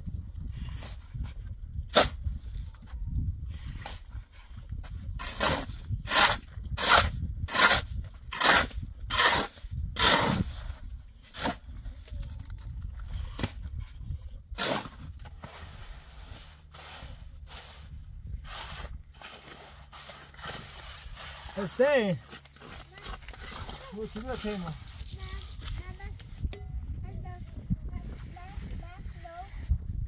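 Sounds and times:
shovel scraping wet cement: 0:00.6 - 0:02.3, 0:05.1 - 0:11.7, 0:14.5 - 0:25.8
cement being smoothed: 0:03.5 - 0:10.7, 0:14.2 - 0:26.1.

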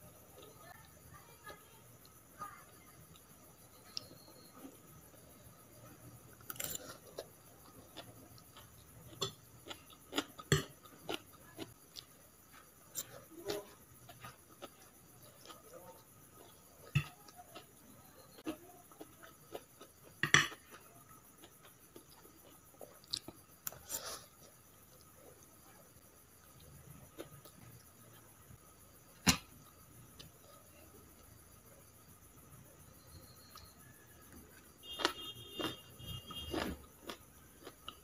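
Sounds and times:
chewing noodles: 0:05.8 - 0:28.4, 0:34.4 - 0:38.0.

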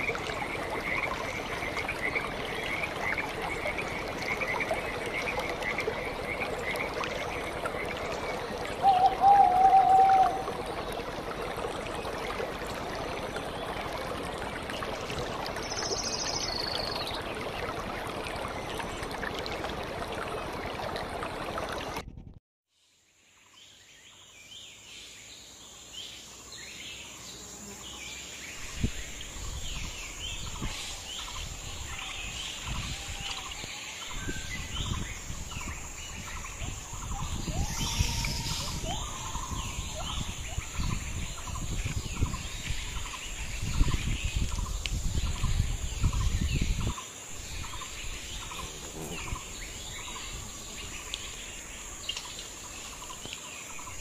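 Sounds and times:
birds chirping: 0:45.5 - 0:54.0.

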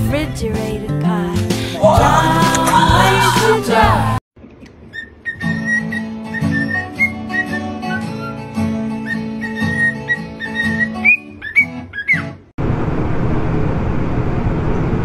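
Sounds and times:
acoustic guitar strumming: 0:01.8 - 0:04.0
cockatiel whistling and chirping: 0:04.9 - 0:12.3.

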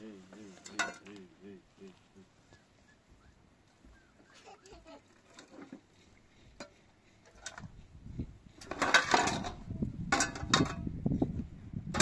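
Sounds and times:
dishes clattering in water: 0:00.6 - 0:01.1, 0:08.7 - 0:10.8.

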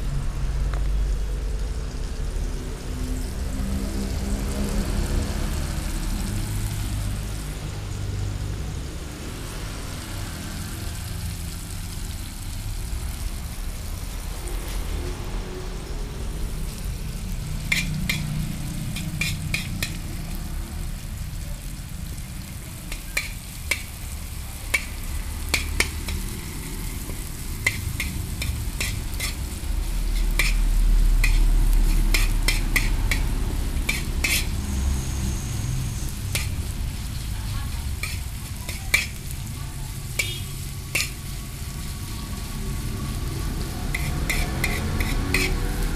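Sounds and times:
low rumble: 0:00.0 - 0:10.5
shallots sizzling in oil: 0:00.0 - 0:45.9
metal spoon scraping a pan: 0:17.6 - 0:20.3, 0:22.9 - 0:35.2, 0:35.9 - 0:36.7, 0:37.6 - 0:39.4, 0:40.1 - 0:41.4, 0:43.8 - 0:45.9.

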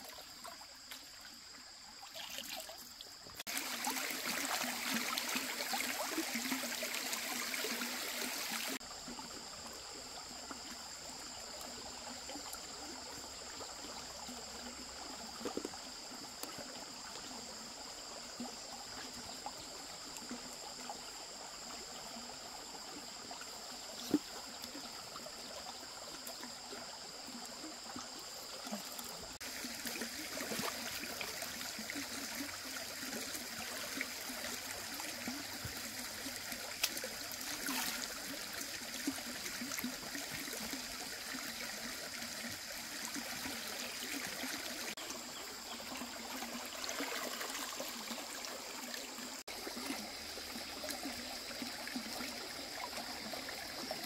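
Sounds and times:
water rushing: 0:02.1 - 0:08.9, 0:28.9 - 0:54.0.

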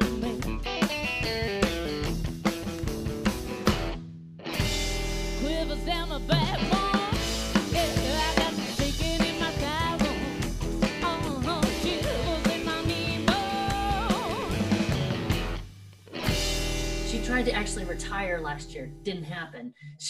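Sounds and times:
live rockabilly band playing: 0:00.0 - 0:18.1
woman singing: 0:05.4 - 0:14.8.

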